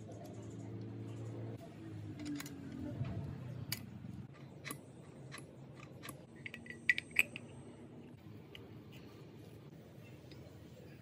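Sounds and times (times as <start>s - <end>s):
metal parts clicking and tapping: 2.0s - 7.6s.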